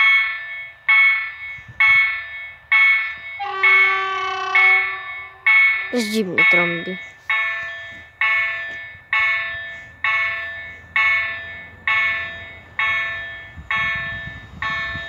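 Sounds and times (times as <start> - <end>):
train rumble: 0.0 - 15.0
level crossing bell ringing: 4.6 - 14.1.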